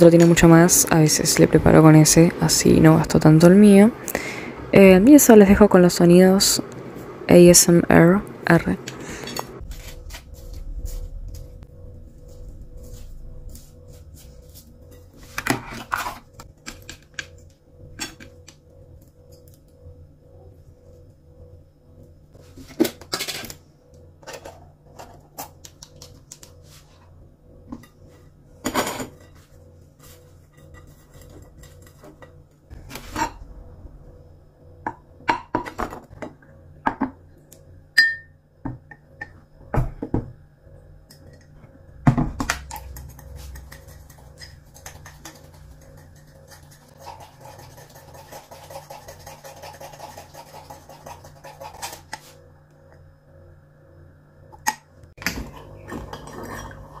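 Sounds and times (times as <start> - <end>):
steady low hum: 0.0 - 57.0
soft rustling scrape: 9.6 - 16.3.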